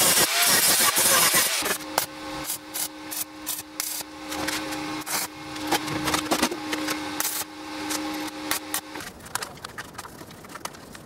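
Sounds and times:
welding arc crackling: 0.0s - 11.0s
steady low hum: 1.6s - 9.2s.

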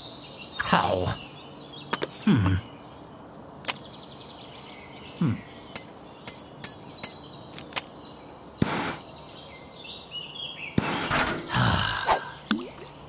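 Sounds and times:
burst of hiss: 8.6s - 9.0s
falling vocal grunt: 11.2s - 12.4s.

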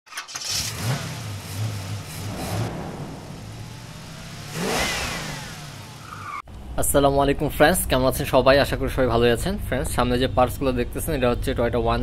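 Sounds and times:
sports car engine revving: 0.5s - 6.4s
rushing whoosh: 1.7s - 6.4s.

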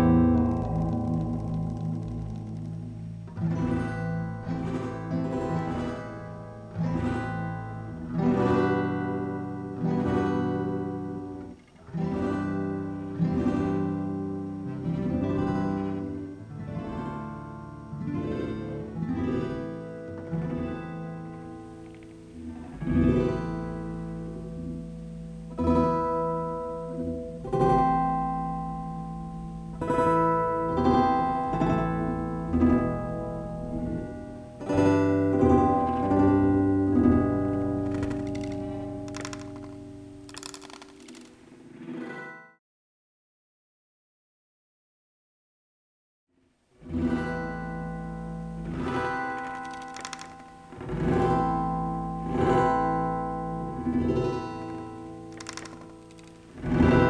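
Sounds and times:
pitch-shifted plucked-string music: 0.0s - 42.5s, 46.8s - 57.0s.

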